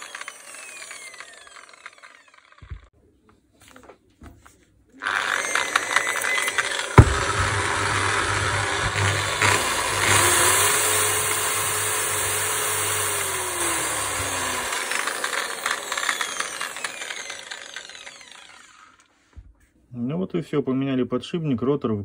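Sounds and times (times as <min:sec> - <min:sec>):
electric polisher motor whining: 0:00.0 - 0:02.8, 0:05.0 - 0:19.1.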